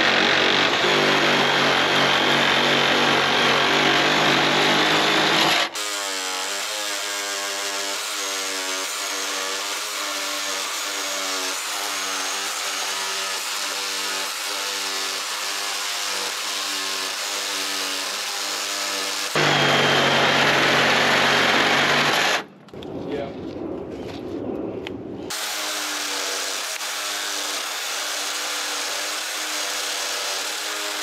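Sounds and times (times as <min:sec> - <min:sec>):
reciprocating saw cutting metal: 0:00.0 - 0:22.5, 0:25.3 - 0:31.0.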